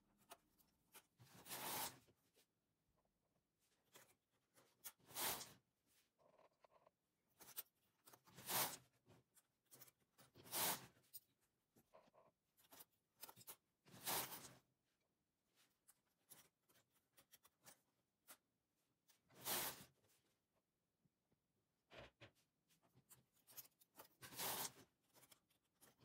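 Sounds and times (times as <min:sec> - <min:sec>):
scraping swishes along needle bed: 0:00.3 - 0:02.2, 0:03.9 - 0:06.0, 0:07.4 - 0:11.2, 0:12.6 - 0:14.7, 0:19.1 - 0:20.2, 0:22.3 - 0:26.0.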